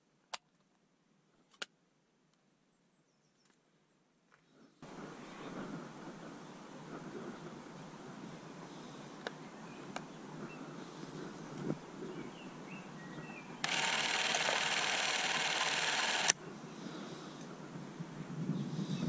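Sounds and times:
film camera mechanism whirring: 0:13.6 - 0:16.4.

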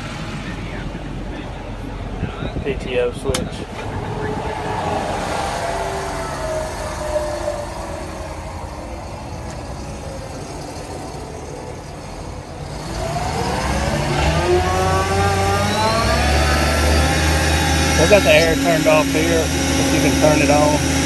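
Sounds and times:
diesel engine idling: 0:00.0 - 0:21.0
rising engine whine: 0:00.0 - 0:21.0.

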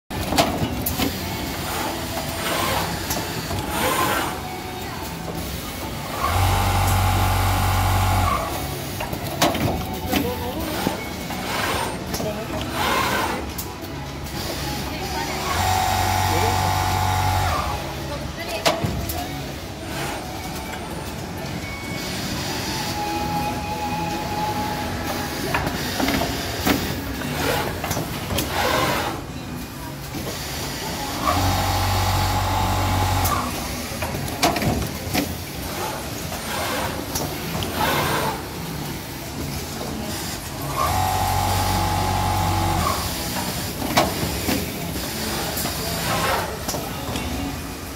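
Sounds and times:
sewing machine humming: 0:31.1 - 0:33.6, 0:40.2 - 0:43.7.

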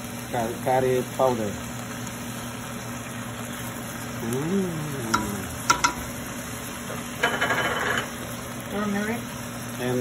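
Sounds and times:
ringing clinks against pot: 0:07.2 - 0:08.1.

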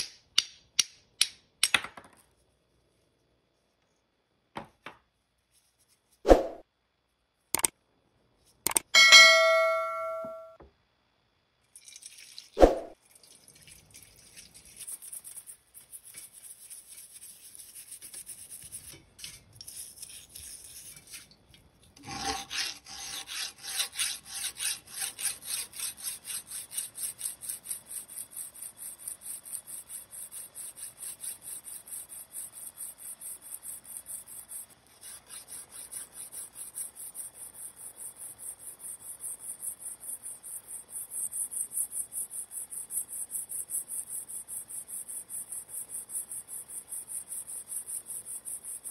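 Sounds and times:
scrubbing metal in liquid: 0:11.7 - 0:32.8
file rasping on steel: 0:22.0 - 0:37.4.

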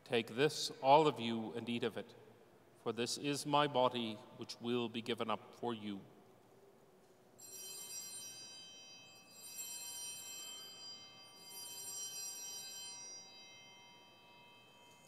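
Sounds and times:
altar bells ringing: 0:07.4 - 0:15.0.

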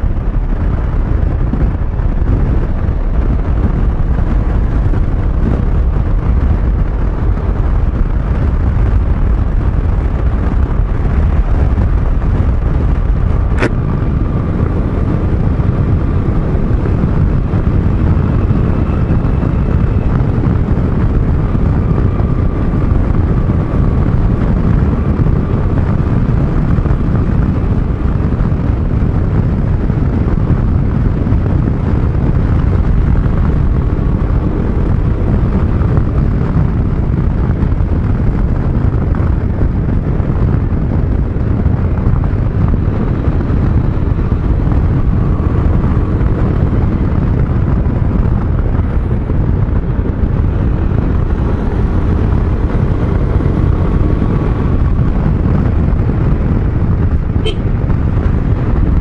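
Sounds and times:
road noise: 0:00.0 - 0:59.0
wind on microphone: 0:00.0 - 0:59.0
scooter engine: 0:10.8 - 0:27.8.

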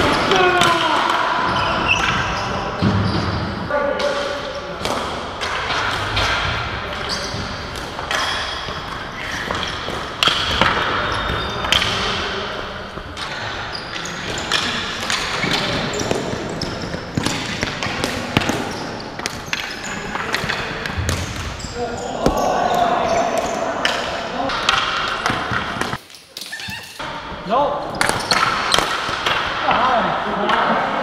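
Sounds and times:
players calling out: 0:00.0 - 0:05.0, 0:10.6 - 0:25.6
hockey sticks clacking: 0:04.0 - 0:21.6, 0:22.2 - 0:27.1, 0:27.9 - 0:30.9.

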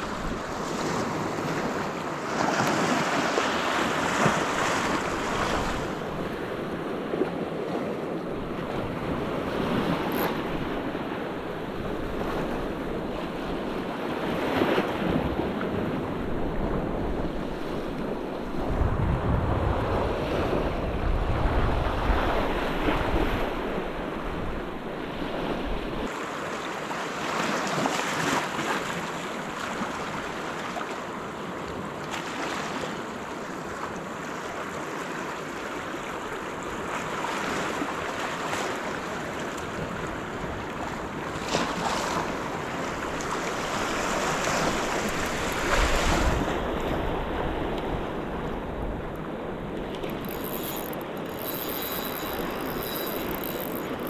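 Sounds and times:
wind buffeting microphone: 0:14.9 - 0:26.1.

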